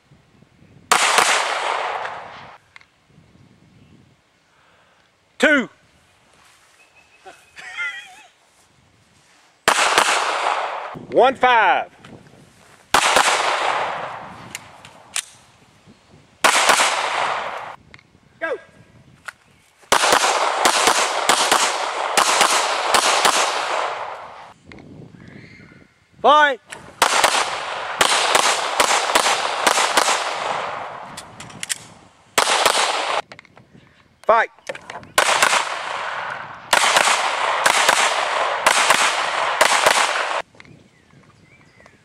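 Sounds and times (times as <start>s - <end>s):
handgun shots with echo: 19.9s - 24.5s, 34.8s - 40.4s.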